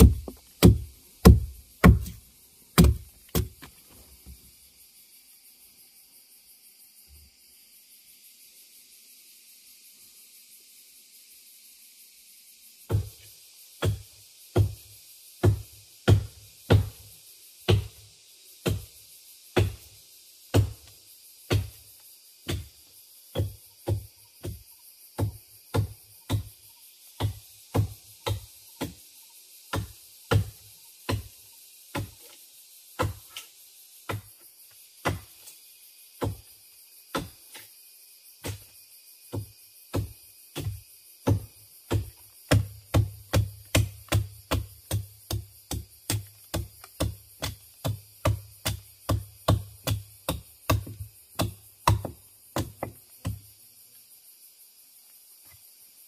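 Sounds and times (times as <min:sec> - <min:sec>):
hand tool striking wood: 0:00.0 - 0:02.2, 0:02.8 - 0:03.8, 0:13.8 - 0:14.8, 0:15.4 - 0:17.0, 0:20.5 - 0:20.9, 0:21.5 - 0:21.8, 0:22.4 - 0:24.6, 0:25.2 - 0:26.5, 0:27.2 - 0:29.0, 0:29.7 - 0:31.3, 0:33.0 - 0:33.5, 0:34.1 - 0:34.3, 0:35.0 - 0:35.5, 0:36.2 - 0:36.5, 0:37.1 - 0:37.7, 0:39.3 - 0:53.4.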